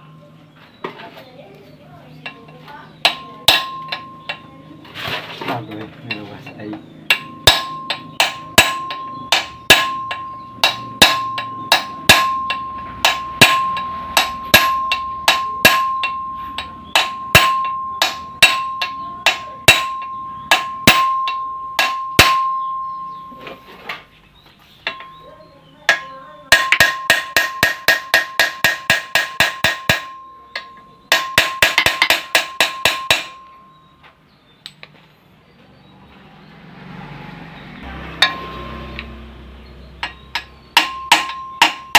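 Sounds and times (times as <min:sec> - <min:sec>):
hammer striking steel punch: 0:03.0 - 0:04.5, 0:07.1 - 0:23.6, 0:25.9 - 0:33.8, 0:38.2 - 0:41.9.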